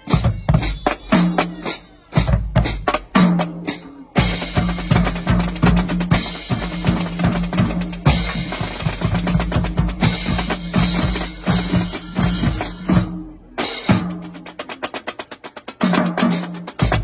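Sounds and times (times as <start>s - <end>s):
snare drums: 0.0s - 17.0s
bass drums: 4.2s - 14.8s.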